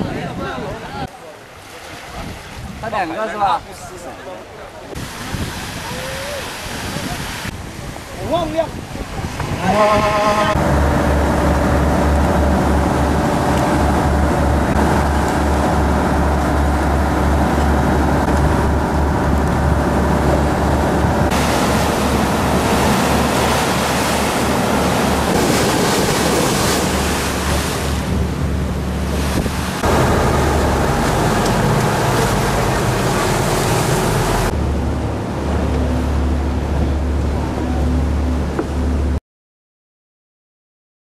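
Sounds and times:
wind buffeting microphone: 0:04.9 - 0:36.0
wake rushing: 0:04.9 - 0:39.0
boat engine drone: 0:09.0 - 0:39.2.

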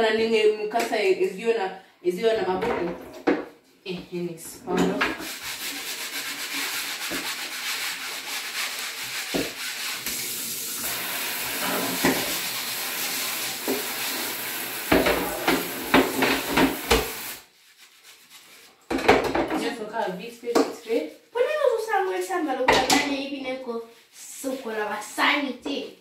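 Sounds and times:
tap water splashing in sink: 0:09.1 - 0:17.4
items knocking against sink: 0:11.6 - 0:12.4, 0:14.9 - 0:17.2, 0:18.9 - 0:19.6.

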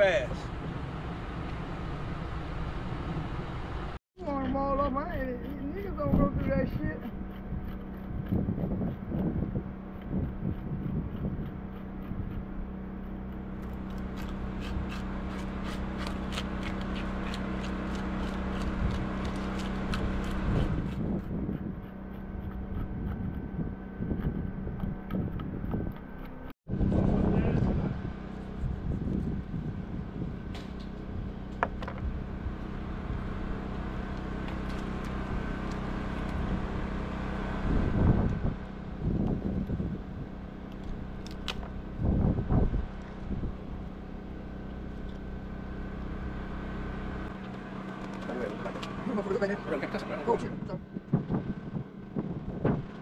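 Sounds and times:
low hum: 0:00.0 - 0:53.0
low rumble: 0:00.0 - 0:53.0
scaler rasping fish scales: 0:06.8 - 0:26.5.

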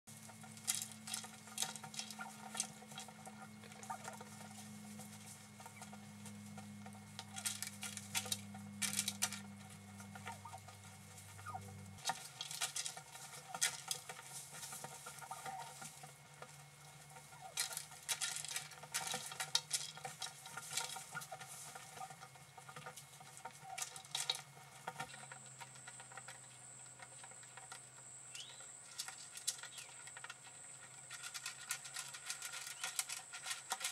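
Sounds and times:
faint steady hum: 0:00.1 - 0:33.9
turkeys pecking and scratching: 0:00.1 - 0:33.9.

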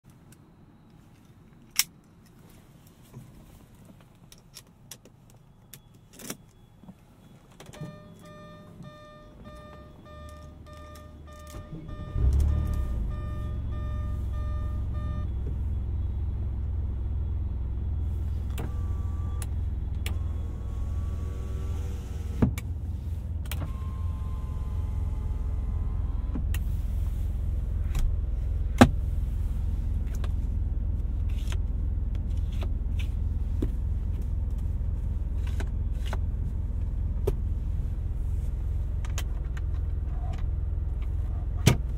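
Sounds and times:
car engine starting and idling: 0:06.0 - 0:41.9
electronic warning tone: 0:07.8 - 0:15.3.

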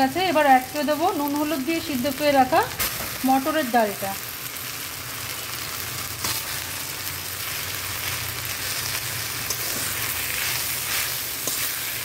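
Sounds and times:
food sizzling in a wok: 0:00.0 - 0:12.0
spatula scraping a pan: 0:08.0 - 0:12.0.

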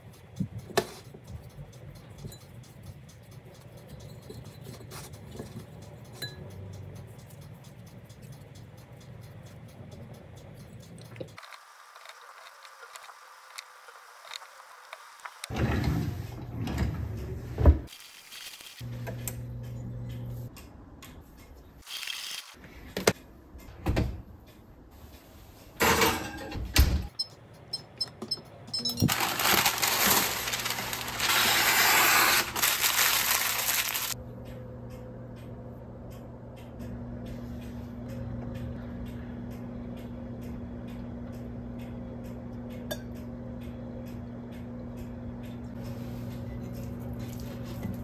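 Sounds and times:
low hum: 0:32.6 - 0:47.9.

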